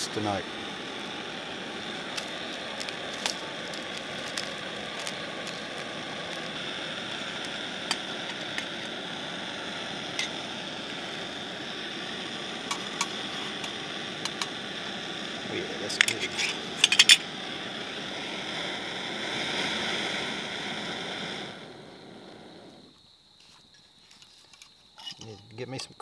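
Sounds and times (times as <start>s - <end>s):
wood fire crackling and hissing: 0.0s - 26.0s
sharp pops from fire: 0.8s - 9.2s, 10.0s - 18.6s.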